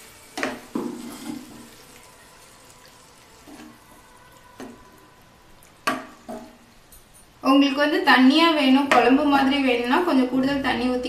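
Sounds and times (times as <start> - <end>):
food hissing and bubbling in pan: 0.0 - 6.9.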